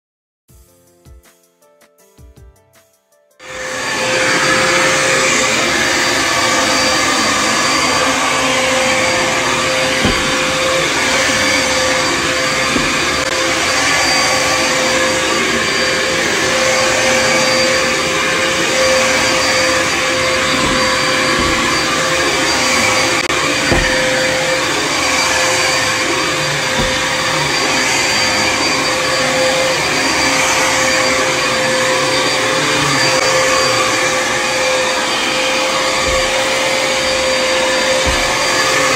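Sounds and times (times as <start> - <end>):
vacuum cleaner running on carpet: 3.4 - 38.9
low bumps: 9.0 - 13.3, 19.0 - 24.6, 26.7 - 27.4.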